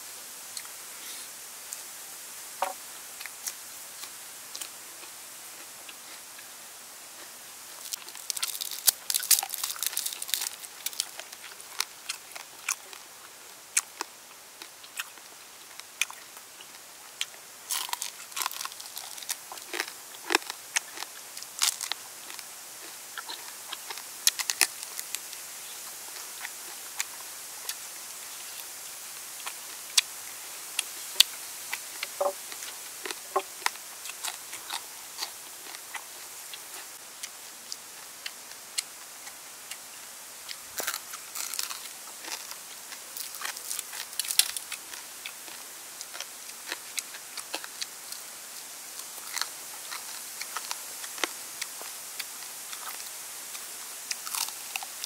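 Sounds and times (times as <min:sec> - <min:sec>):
crunching and chewing fried food: 0:02.6 - 0:55.0.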